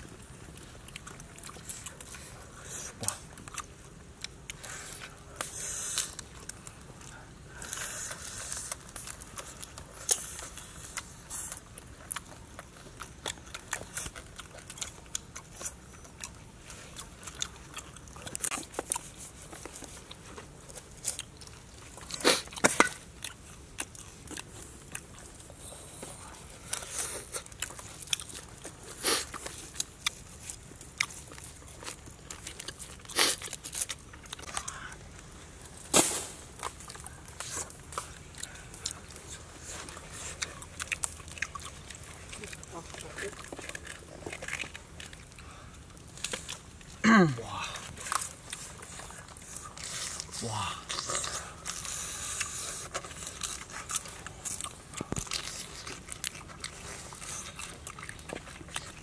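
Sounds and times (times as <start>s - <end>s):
crunching and chewing: 0.0s - 59.0s.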